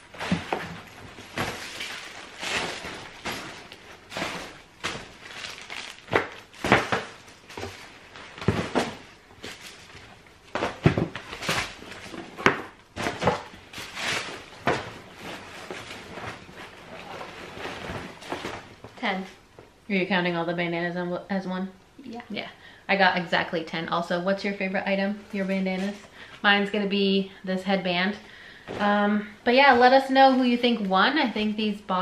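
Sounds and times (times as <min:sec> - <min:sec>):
clothing rustling: 0:00.0 - 0:19.0.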